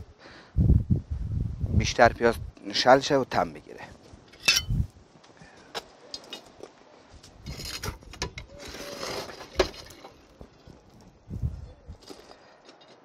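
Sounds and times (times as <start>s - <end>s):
coals clinking on metal lid: 4.3s - 4.8s
scraping: 6.2s - 13.0s.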